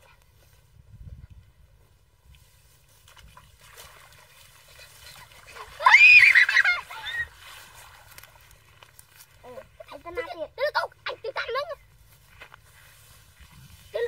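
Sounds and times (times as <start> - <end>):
faint splashing in water: 2.2 - 10.0.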